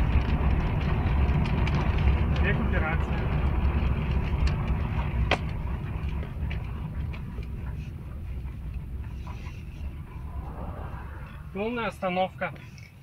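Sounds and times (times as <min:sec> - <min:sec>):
car road rumble: 0:00.0 - 0:13.0.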